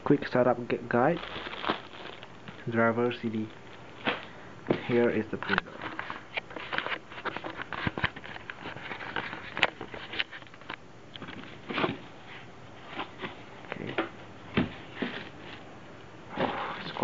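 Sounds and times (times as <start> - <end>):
plastic bag crinkling: 0.3 - 10.6.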